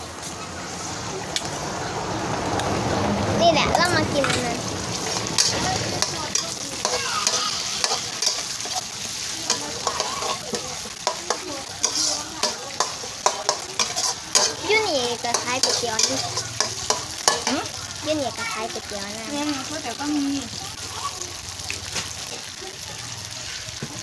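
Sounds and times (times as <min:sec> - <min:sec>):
food sizzling in oil: 0:00.0 - 0:24.0
metal spatula scraping a wok: 0:04.9 - 0:17.8.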